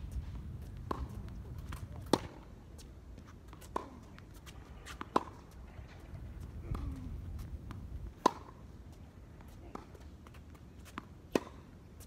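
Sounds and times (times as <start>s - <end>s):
footsteps on court: 0.0s - 11.6s
racquet striking tennis ball: 2.0s - 2.4s, 7.7s - 8.6s, 11.3s - 11.6s.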